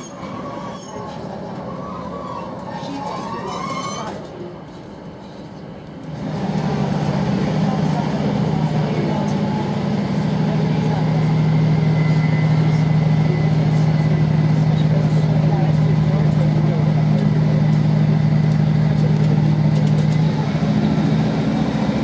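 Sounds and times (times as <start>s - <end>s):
train wheels squealing: 0.0s - 4.3s
train running noise: 0.0s - 22.0s.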